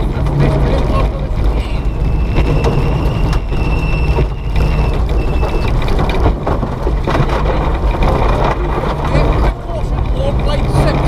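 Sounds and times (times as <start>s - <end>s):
car rattles and knocks: 0.0s - 11.0s
rally car engine running hard: 0.0s - 11.0s
high gearbox whine: 1.2s - 6.4s.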